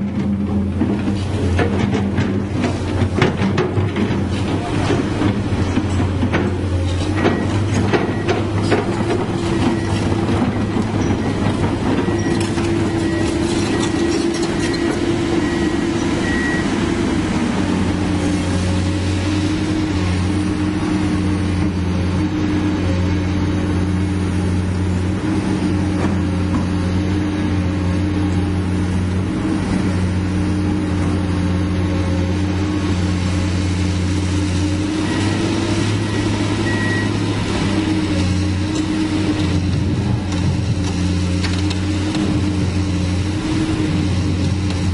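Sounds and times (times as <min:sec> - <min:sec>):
excavator diesel engine running: 0:00.0 - 0:44.9.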